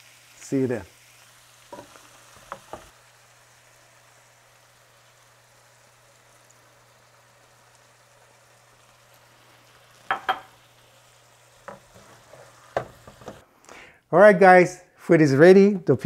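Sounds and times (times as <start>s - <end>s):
shrimp sizzling in a pan: 0.0s - 13.4s
utensil knocking against pan: 10.1s - 10.5s.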